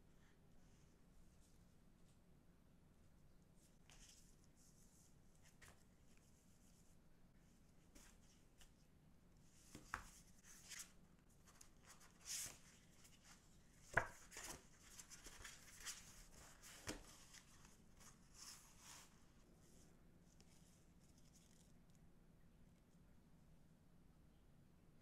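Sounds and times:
paper rustling: 9.6 - 22.0.

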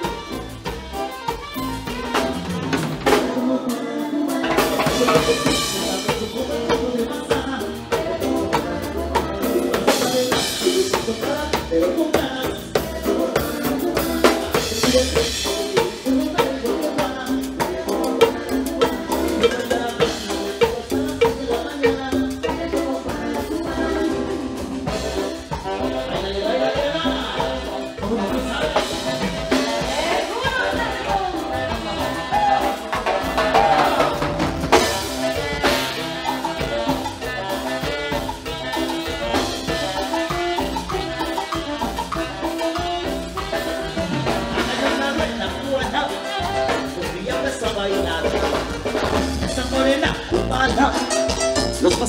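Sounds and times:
dance music with drum beat: 0.0 - 52.0.

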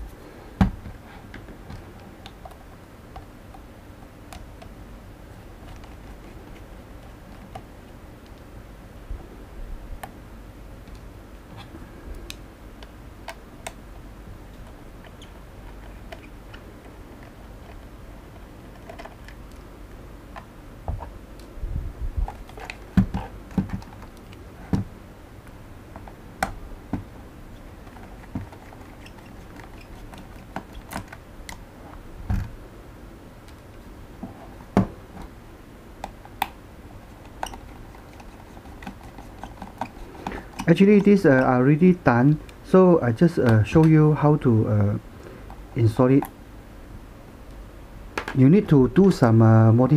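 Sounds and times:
plastic case being handled: 22.2 - 24.9, 27.7 - 31.2, 37.0 - 41.3.

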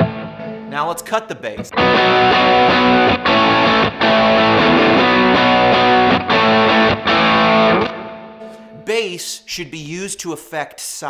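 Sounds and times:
distorted electric guitar chords: 0.0 - 0.7, 1.6 - 8.8.

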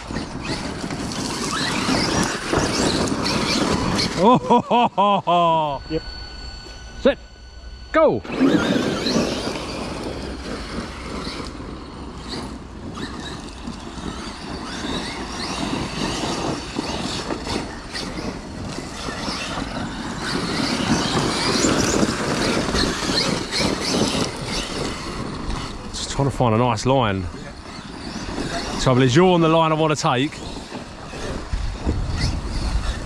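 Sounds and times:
tyres churning dirt: 0.0 - 7.2, 7.9 - 33.0
electric motors whining: 0.0 - 33.0.

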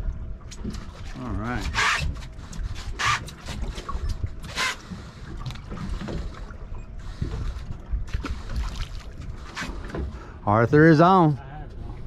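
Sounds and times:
wind and water rumble: 0.0 - 12.0.

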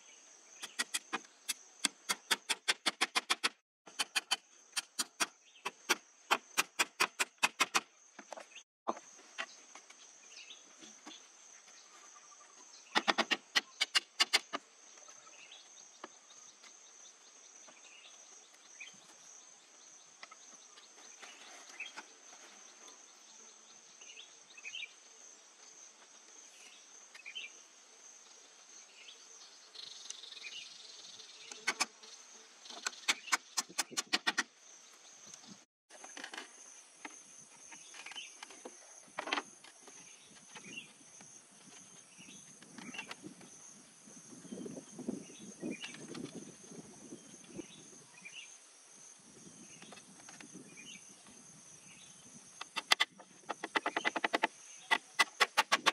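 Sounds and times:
insects droning: 0.0 - 55.9
hatchet striking bamboo frame: 0.6 - 7.9, 13.0 - 14.6, 33.0 - 34.5, 52.7 - 55.9.

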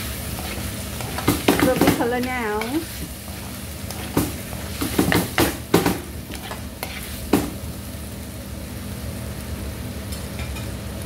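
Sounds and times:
spatula scraping wok: 0.0 - 7.5
food sizzling in wok: 0.0 - 11.0.

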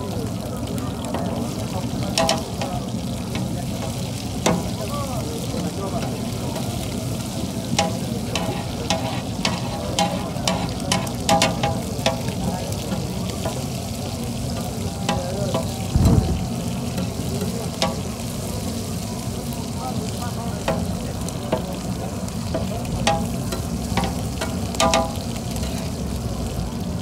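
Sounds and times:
meat sizzling on a griddle: 0.0 - 27.0
metal spatula scraping griddle: 7.8 - 12.2
low thud: 15.9 - 16.5.

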